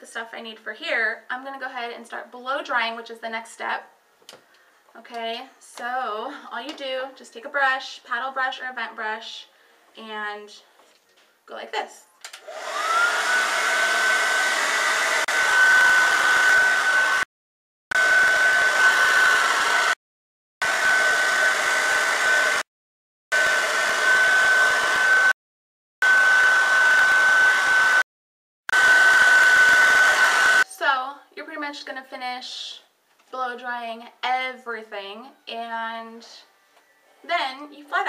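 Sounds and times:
hair dryer whining: 12.3s - 17.3s, 17.9s - 20.0s, 20.6s - 22.7s, 23.3s - 25.4s, 26.0s - 28.1s, 28.7s - 30.7s.

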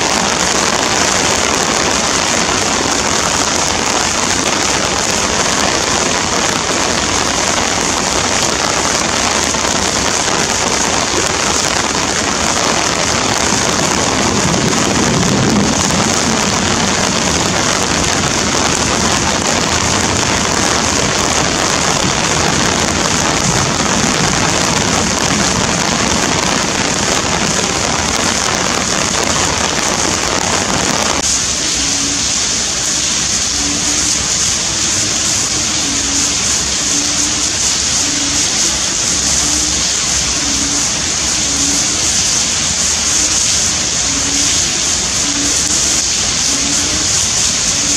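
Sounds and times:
low rumble of thunder: 0.0s - 32.5s
torrential rain hissing: 0.0s - 47.9s.

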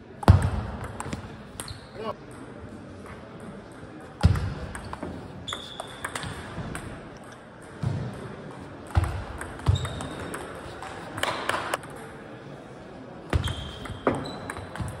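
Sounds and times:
shoes squeaking on floor: 5.5s - 6.1s, 9.6s - 10.3s, 13.3s - 14.8s.

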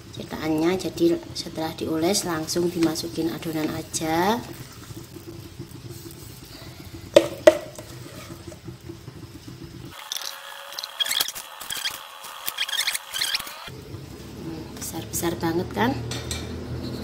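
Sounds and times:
spatula knocking on metal mould: 7.2s - 7.8s
high squeaky chirps: 10.9s - 13.7s.

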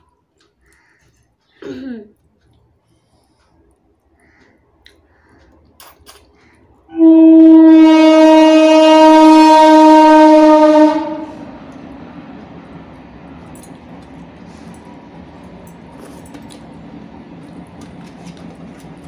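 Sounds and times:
faint clicks: 0.0s - 1.6s
conch shell blown: 6.9s - 11.6s.

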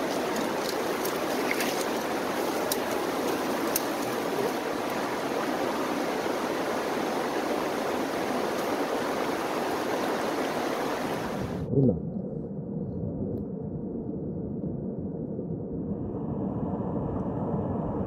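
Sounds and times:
stream flowing over stones: 0.0s - 11.6s.

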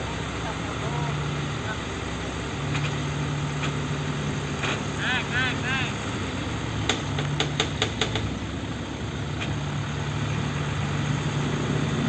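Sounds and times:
diesel truck engine running: 0.0s - 12.0s
sharp clicks: 6.8s - 8.3s.

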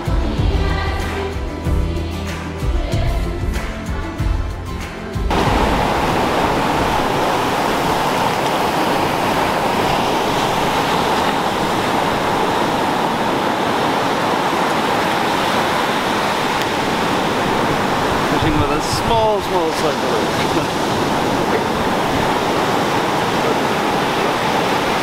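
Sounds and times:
surf washing up a beach: 5.3s - 25.0s.

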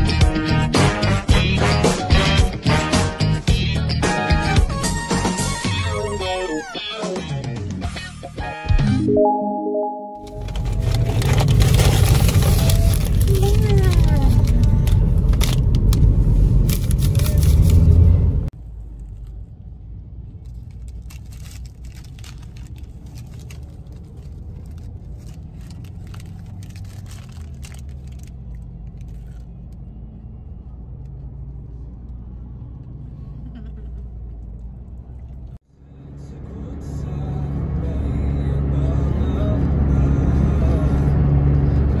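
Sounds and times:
paper sleeve crackling: 10.3s - 18.1s, 20.4s - 29.6s
car cabin road rumble: 10.3s - 35.6s.

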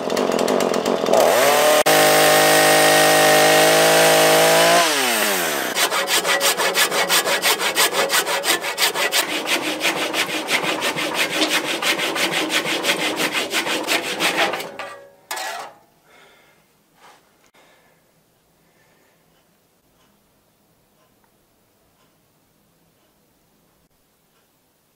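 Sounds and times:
handsaw cutting wood: 0.0s - 14.8s.

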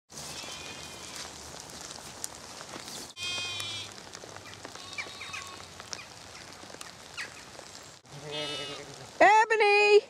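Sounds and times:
light rain patter: 0.1s - 10.0s
lambs bleating: 0.3s - 1.2s, 3.2s - 3.9s, 4.7s - 5.7s, 8.1s - 9.0s.

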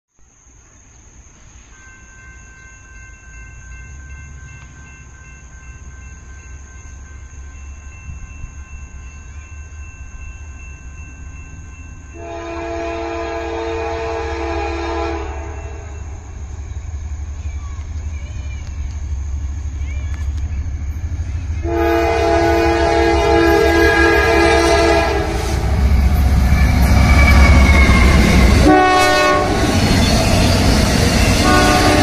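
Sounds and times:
freight train rumbling: 1.8s - 32.0s
locomotive horn chord: 12.1s - 16.1s, 21.6s - 26.0s, 28.2s - 29.8s, 31.2s - 32.0s.

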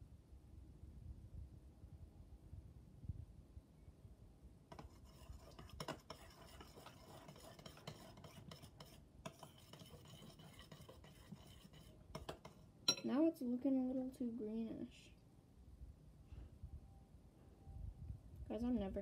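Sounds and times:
metal spoon scraping glass bowl: 4.7s - 13.1s.

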